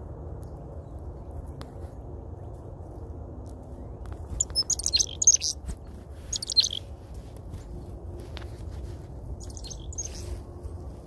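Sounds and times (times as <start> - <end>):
low background rumble: 0.0 - 11.0
chickadees chirping: 4.3 - 6.9, 9.4 - 10.4.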